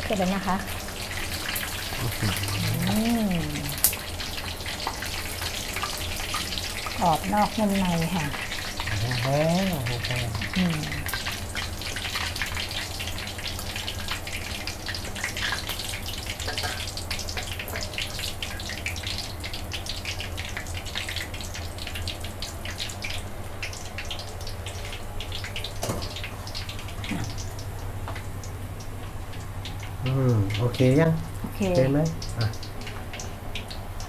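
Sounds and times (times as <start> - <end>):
frying in hot oil: 0.0 - 34.0
low hum: 8.8 - 11.2.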